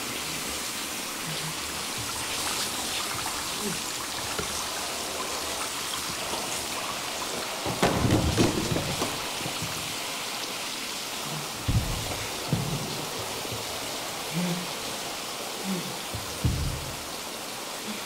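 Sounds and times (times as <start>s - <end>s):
shower spray splashing: 0.0s - 18.0s
dull thumps: 7.4s - 10.1s, 11.6s - 14.0s, 16.1s - 17.2s.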